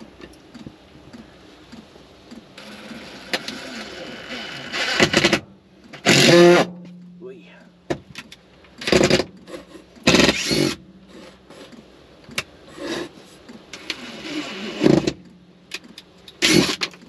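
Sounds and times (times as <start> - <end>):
cordless drill driving screw: 4.4 - 5.4, 10.1 - 11.8, 16.4 - 17.0.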